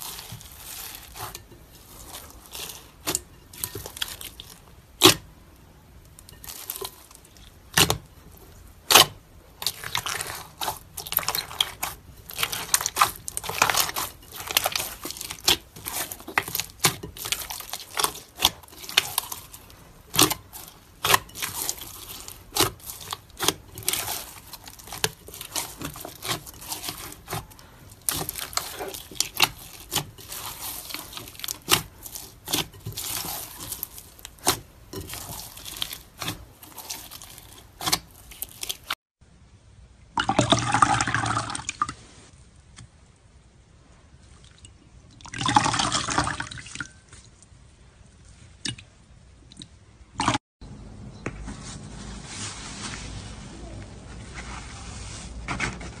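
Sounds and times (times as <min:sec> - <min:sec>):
slime being kneaded and squeezed: 0:00.0 - 0:05.2, 0:06.1 - 0:39.0.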